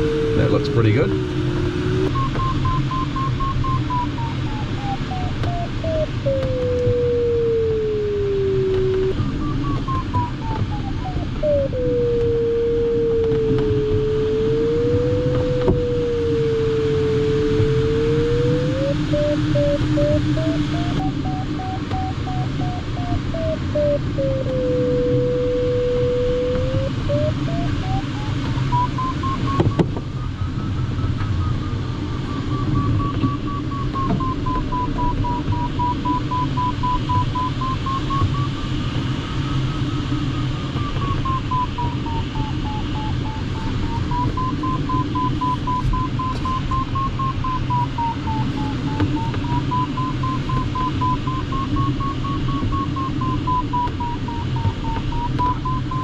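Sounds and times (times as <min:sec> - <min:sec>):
cockpit airflow noise: 0:00.0 - 0:56.0
variometer tone and beeps: 0:00.0 - 0:56.0.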